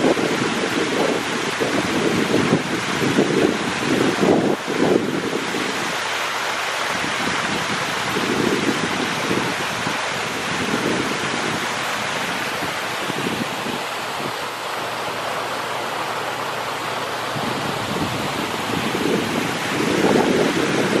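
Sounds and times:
water flowing in stream: 0:00.0 - 0:21.0.

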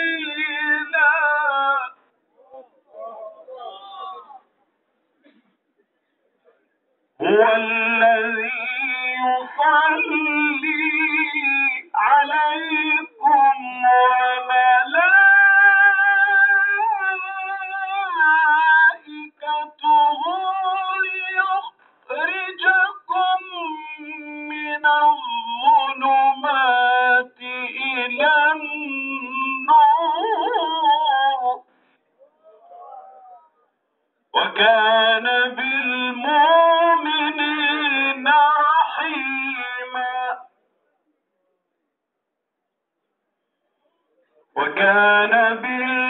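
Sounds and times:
person singing religious chant: 0:00.0 - 0:04.4, 0:07.2 - 0:31.7, 0:34.4 - 0:40.5, 0:44.6 - 0:46.0.

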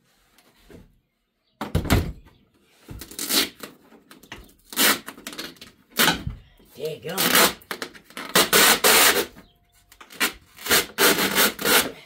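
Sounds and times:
plastic parts scraping and knocking: 0:07.2 - 0:11.9.

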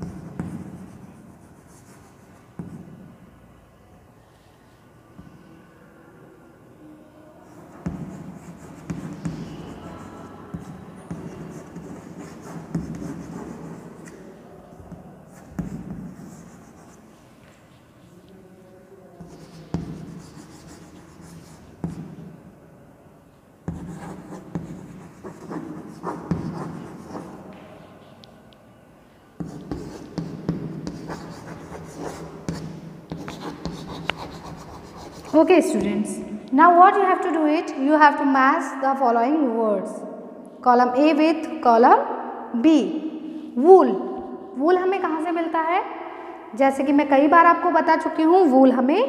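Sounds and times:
chalk scratching on blackboard: 0:00.0 - 0:02.9, 0:07.5 - 0:14.2, 0:14.9 - 0:17.1, 0:19.2 - 0:22.2, 0:23.7 - 0:27.4, 0:29.4 - 0:35.5
chalk tapping on blackboard: 0:00.0 - 0:03.0, 0:07.7 - 0:14.2, 0:14.9 - 0:17.0, 0:19.2 - 0:22.2, 0:23.7 - 0:27.4, 0:29.4 - 0:35.5.

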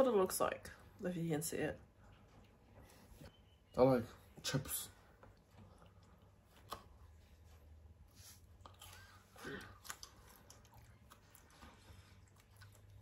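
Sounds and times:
faint chewing: 0:01.8 - 0:03.4, 0:05.0 - 0:13.0.

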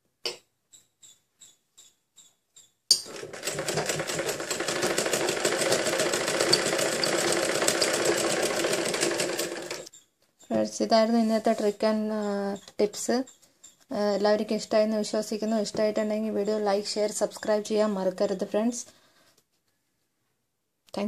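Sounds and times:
sewing machine stitching: 0:03.0 - 0:09.9.

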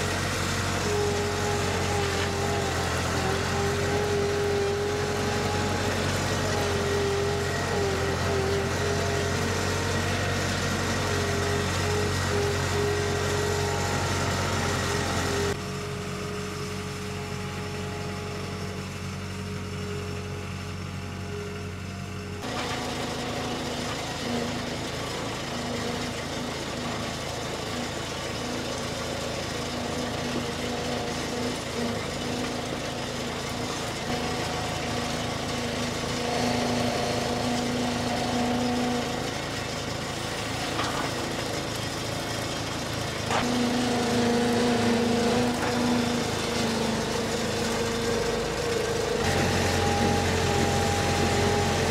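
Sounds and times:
loader engine running: 0:00.0 - 0:51.9.

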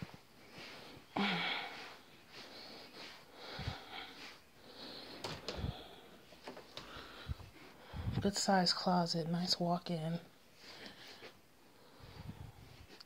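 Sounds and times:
person breathing close to microphone: 0:00.4 - 0:08.3, 0:10.6 - 0:13.0.

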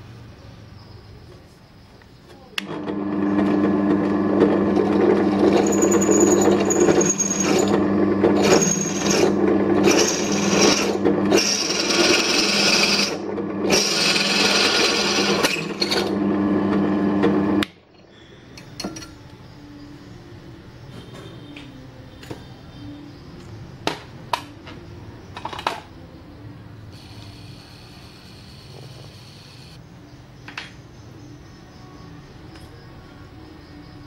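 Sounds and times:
drill bit cutting workpiece: 0:02.6 - 0:17.6
drill press motor hum: 0:02.6 - 0:17.7.

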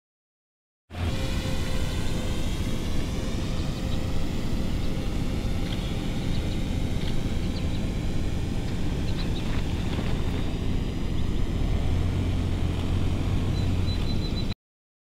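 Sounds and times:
car engine low drone: 0:00.9 - 0:14.6.

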